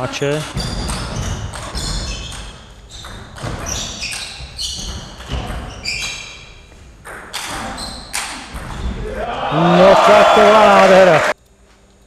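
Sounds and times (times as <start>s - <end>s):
sports shoes squeaking on floor: 0.5s - 9.0s.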